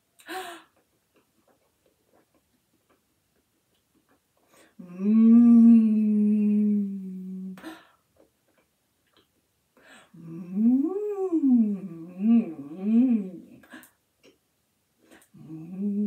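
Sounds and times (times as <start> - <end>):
woman humming with mouth closed: 4.8 - 7.8, 10.1 - 14.4, 15.1 - 16.0.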